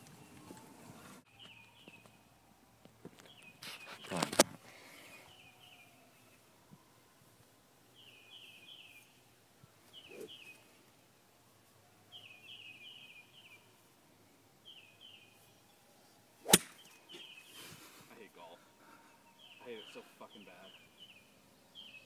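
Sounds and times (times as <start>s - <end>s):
bird chirping: 0.0s - 2.3s, 3.2s - 4.2s, 4.8s - 6.5s, 7.9s - 10.9s, 12.0s - 22.0s
golf club striking ball: 16.4s - 16.9s.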